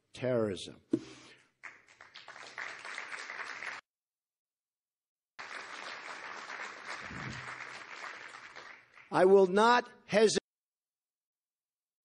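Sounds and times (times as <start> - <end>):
audience applauding: 1.6 - 3.8, 5.4 - 9.3.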